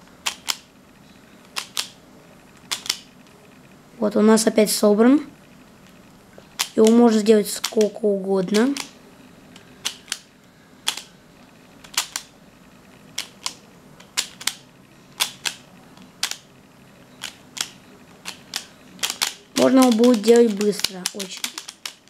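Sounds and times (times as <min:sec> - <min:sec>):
puzzle layers clicking: 0:00.2 - 0:00.6, 0:01.5 - 0:02.0, 0:02.6 - 0:03.1, 0:06.6 - 0:08.9, 0:09.6 - 0:10.2, 0:10.8 - 0:11.1, 0:11.8 - 0:12.3, 0:13.0 - 0:14.6, 0:15.2 - 0:16.4, 0:17.2 - 0:22.0.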